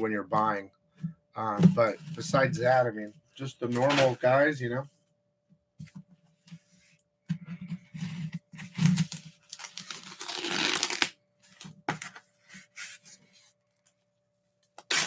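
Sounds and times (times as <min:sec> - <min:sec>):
paper and tape ripping: 0:08.8 - 0:11.1, 0:14.8 - 0:15.0.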